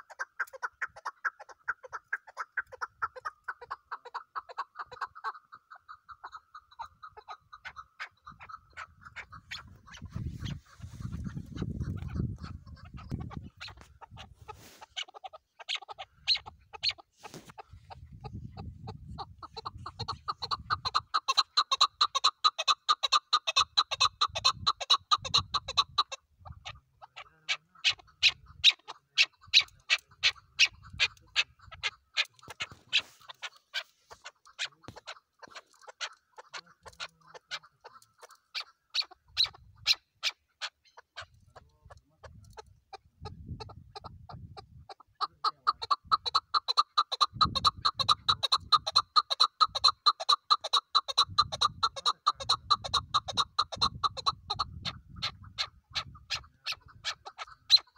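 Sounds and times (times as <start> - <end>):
partridge calling sharp chuck notes: 4.8 - 43.1.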